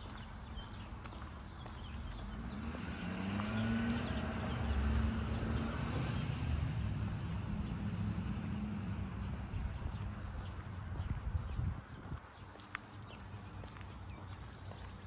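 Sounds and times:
engine humming: 0.0 - 11.8.

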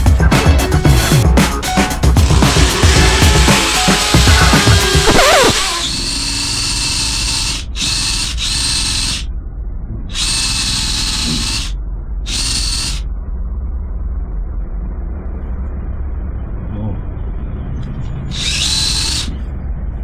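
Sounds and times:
cordless drill motor whine: 2.4 - 9.3, 10.1 - 13.1, 18.3 - 19.3.

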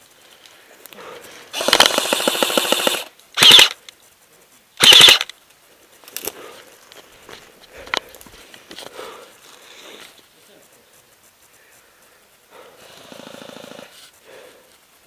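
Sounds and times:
airsoft gun automatic fire: 1.5 - 3.8, 4.8 - 5.3.

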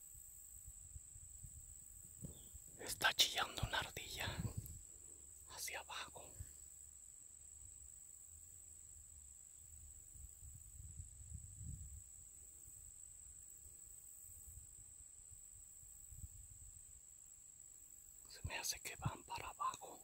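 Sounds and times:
high-pitched insect trill: 0.0 - 20.0.

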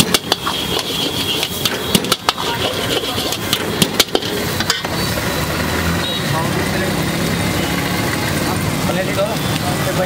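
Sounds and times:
metal ladle clanking on wok: 0.0 - 5.0
vegetables sizzling: 0.0 - 10.0.

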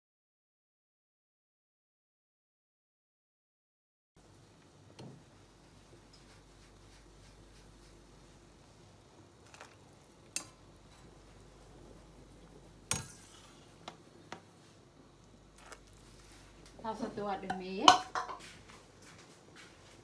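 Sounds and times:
water simmering: 4.2 - 19.0
metal spoon clinking on pot: 17.5 - 18.4.

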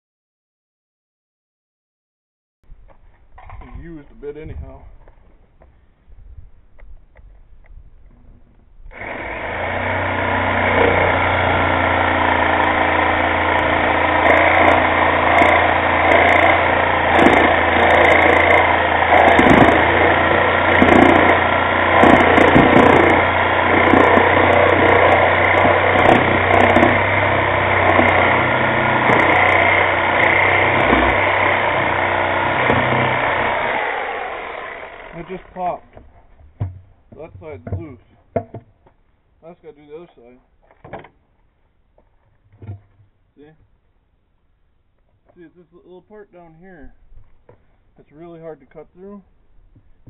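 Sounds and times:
reciprocating saw cutting metal: 8.9 - 35.8.

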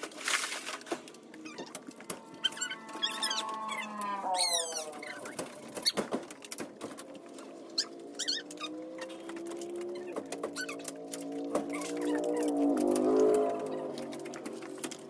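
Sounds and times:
dogs whining: 1.4 - 6.0, 7.6 - 14.3
claws clicking on wooden floor: 5.0 - 15.0.

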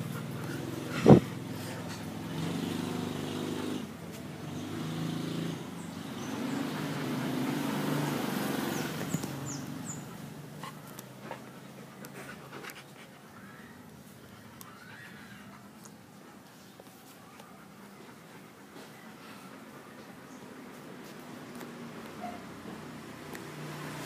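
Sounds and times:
vehicle engine humming: 0.0 - 12.7.

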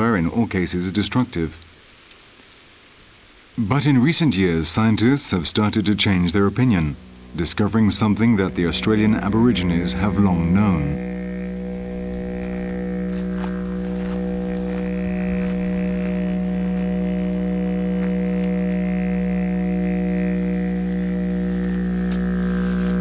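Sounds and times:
didgeridoo drone: 5.0 - 23.0.

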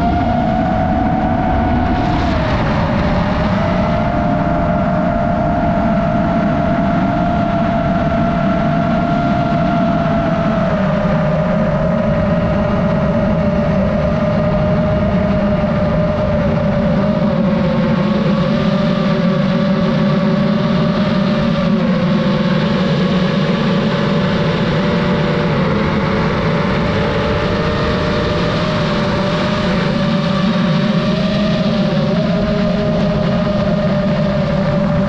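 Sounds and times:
rush of air: 0.0 - 5.2
drone propellers whining: 0.0 - 35.0.

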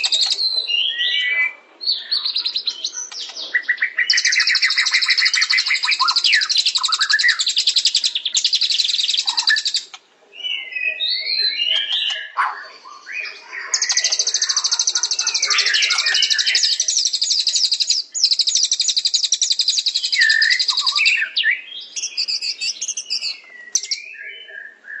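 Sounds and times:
rapid high-pitched bird trill: 0.0 - 1.4, 4.0 - 10.0, 11.0 - 21.3, 22.0 - 24.2
lower bird chirping: 0.0 - 25.0
short whistled bird phrases: 0.0 - 25.0.

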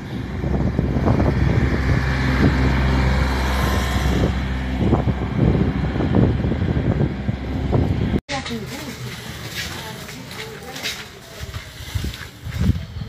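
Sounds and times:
wind noise on microphone: 0.0 - 8.2, 11.3 - 13.0
engine low rumble: 0.0 - 13.0.

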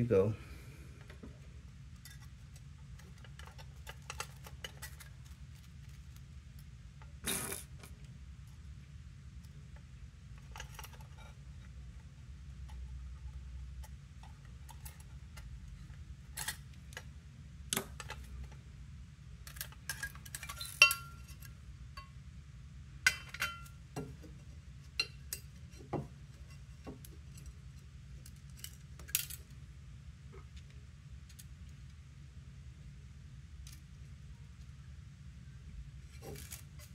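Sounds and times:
small metallic clicks and clinks: 19.4 - 22.2, 25.0 - 29.6.

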